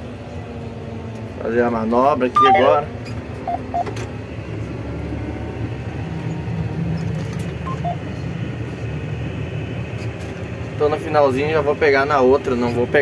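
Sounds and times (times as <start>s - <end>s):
short beeps: 2.4s - 2.9s, 3.5s - 3.9s.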